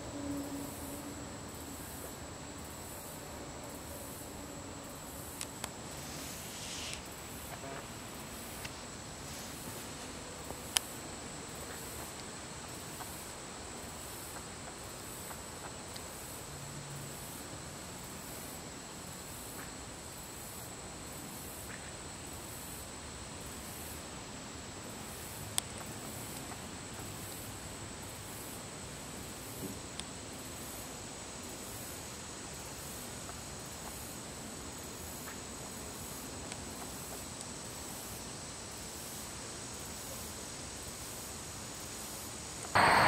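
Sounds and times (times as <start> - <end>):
insect chirring: 0.0 - 17.4, 30.4 - 43.0.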